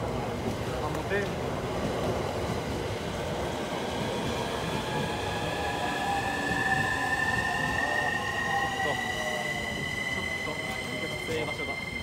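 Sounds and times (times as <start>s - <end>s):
rail station background noise: 0.0s - 12.0s
electric train whine: 2.7s - 12.0s.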